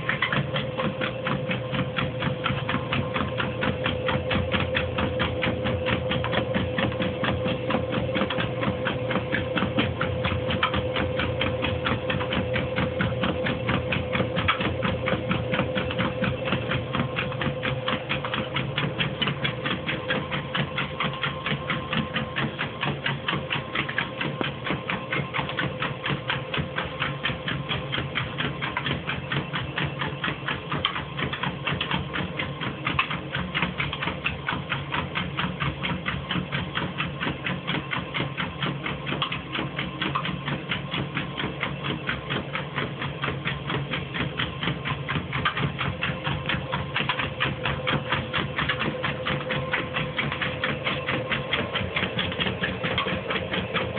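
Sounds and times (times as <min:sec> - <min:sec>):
treadmill belt clatter: 0:00.0 - 0:53.9
treadmill motor hum: 0:00.0 - 0:53.9.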